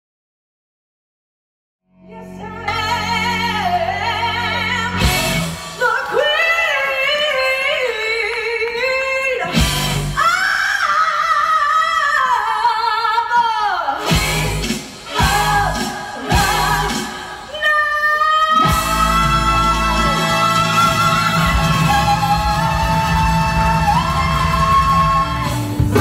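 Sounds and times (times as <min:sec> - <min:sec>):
musical backing: 0:02.0 - 0:08.6, 0:09.4 - 0:10.3, 0:14.0 - 0:17.8, 0:18.5 - 0:26.0
woman singing with vibrato: 0:02.1 - 0:26.0.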